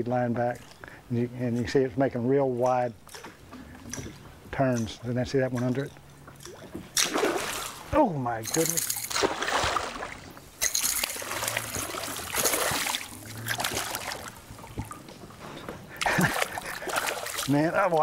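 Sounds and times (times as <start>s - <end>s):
water splashing: 3.1s - 18.0s
fish thrashing at water surface: 6.4s - 7.9s, 8.5s - 15.0s, 16.0s - 18.0s.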